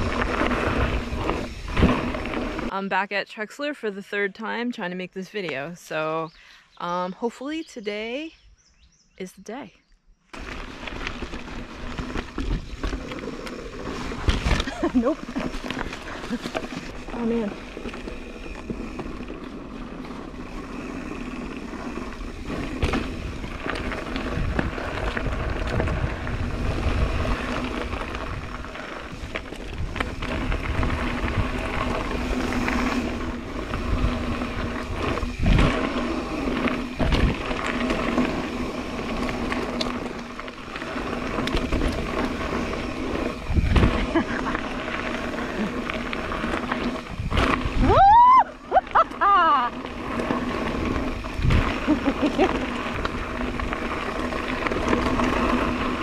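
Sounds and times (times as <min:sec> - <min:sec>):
wind on microphone: 0:00.0 - 0:02.7, 0:20.4 - 0:56.0
bike rattling: 0:00.0 - 0:02.8, 0:10.3 - 0:56.0
bike tyres on gravel trail: 0:00.0 - 0:03.1, 0:10.2 - 0:56.0
bike knocking on rocks: 0:21.7 - 0:27.0.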